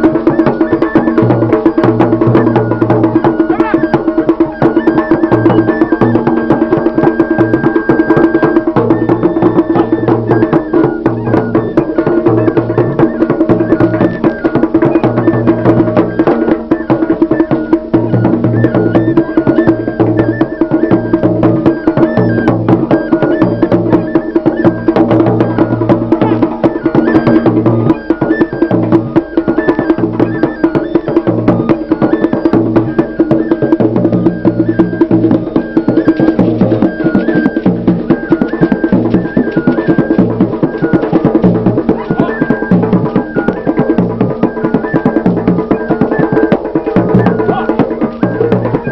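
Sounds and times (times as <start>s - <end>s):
fast drumming and percussion: 0.0s - 48.9s.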